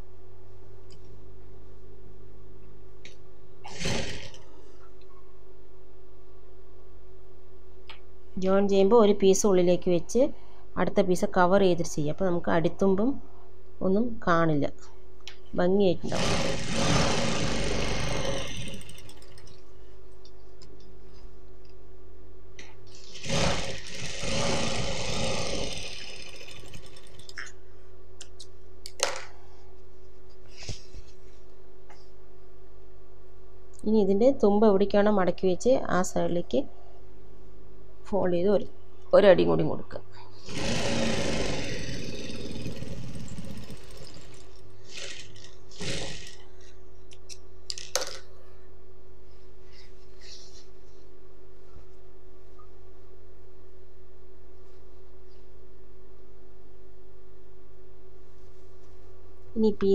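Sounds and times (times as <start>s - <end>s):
industrial sewing machine running: 16.1s - 19.5s, 23.2s - 27.3s, 40.5s - 46.4s.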